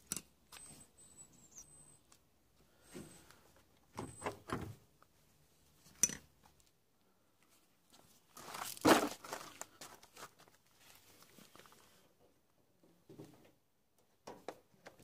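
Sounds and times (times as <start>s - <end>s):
hard parts scraping and clinking: 5.9s - 6.3s.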